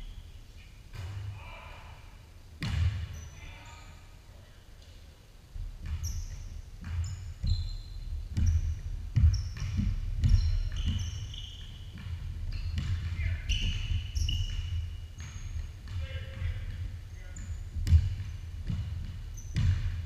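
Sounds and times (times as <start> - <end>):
sneakers squeaking: 2.6 - 4.0, 5.8 - 20.0
basketball bouncing on wood floor: 5.8 - 20.0.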